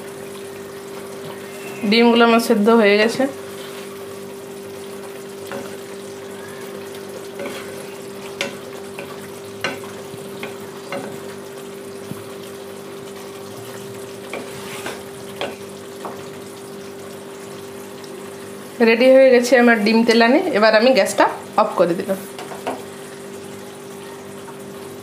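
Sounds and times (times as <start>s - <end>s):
spatula scraping a pan: 7.1s - 11.2s, 14.2s - 15.6s.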